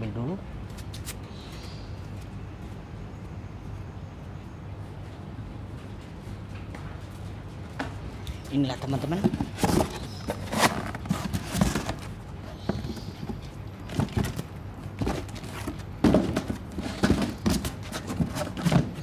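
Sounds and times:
cardboard boxes knocking and scraping: 0:09.1 - 0:19.0.

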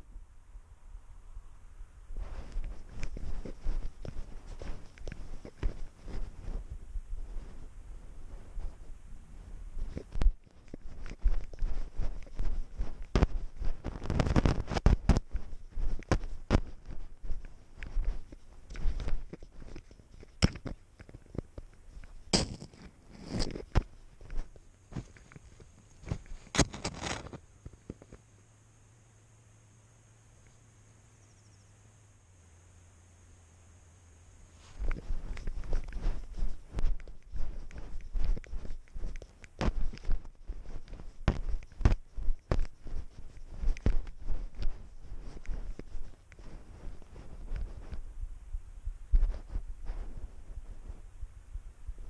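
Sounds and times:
steady low rumble: 0:00.0 - 0:22.6, 0:34.8 - 0:52.0
snow brushing against camera: 0:02.1 - 0:20.7, 0:34.5 - 0:48.1
paws crunching through snow: 0:02.2 - 0:27.3, 0:34.6 - 0:48.1, 0:49.1 - 0:51.0.

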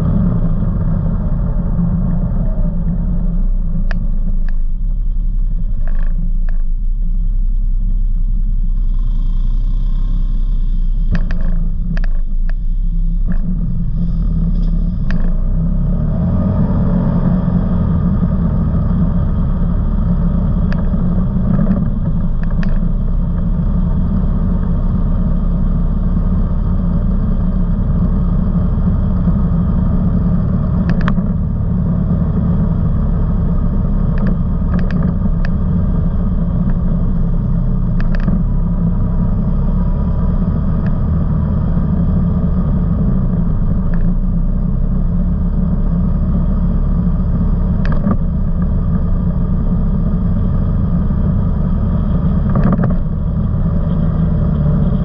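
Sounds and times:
off-road vehicle engine rumbling: 0:00.0 - 0:55.0
sharp knocks and clicks over bumps: 0:05.8 - 0:06.7, 0:11.1 - 0:12.6, 0:15.0 - 0:15.4, 0:20.6 - 0:23.5, 0:30.7 - 0:31.5, 0:34.1 - 0:35.7, 0:37.9 - 0:38.5, 0:43.9 - 0:44.2, 0:47.8 - 0:49.0, 0:52.3 - 0:53.2.

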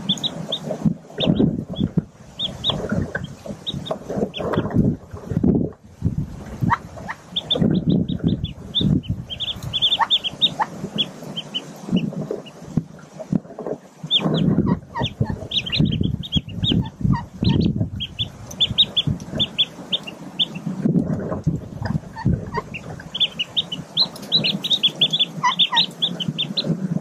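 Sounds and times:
ducklings peeping: 0:00.0 - 0:05.5, 0:06.2 - 0:27.0
low soft clucking calls: 0:06.4 - 0:26.8.

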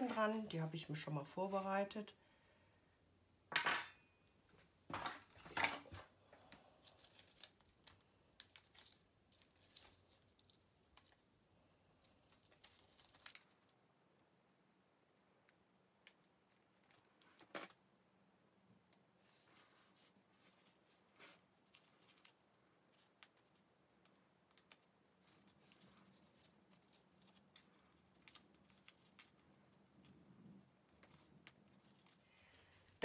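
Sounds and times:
paper crafting clicks and rustles: 0:06.8 - 0:11.2, 0:12.0 - 0:13.8.

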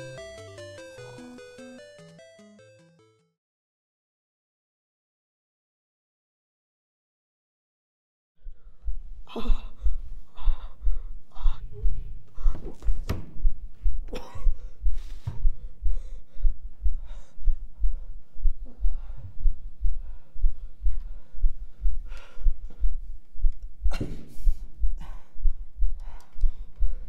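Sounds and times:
heartbeat beating low: 0:08.4 - 0:27.0.

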